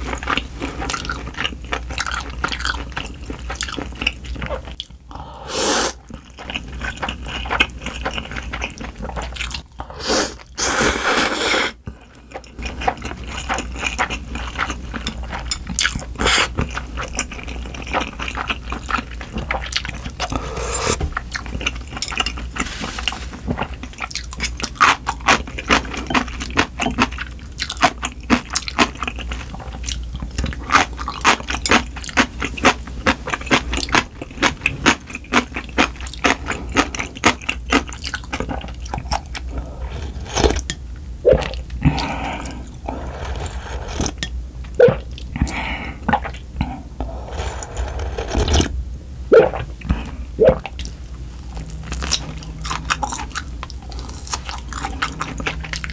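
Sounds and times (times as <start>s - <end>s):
chewing: 0.0s - 5.0s, 6.0s - 10.5s, 11.8s - 48.7s, 49.4s - 55.9s
slurping broth: 5.4s - 6.0s, 9.9s - 11.8s, 19.4s - 21.0s, 39.4s - 40.7s, 41.3s - 44.2s, 44.8s - 48.7s.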